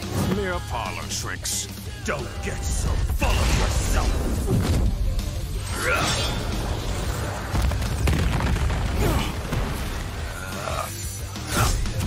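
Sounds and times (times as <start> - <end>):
explosion blast: 6.6 - 10.2.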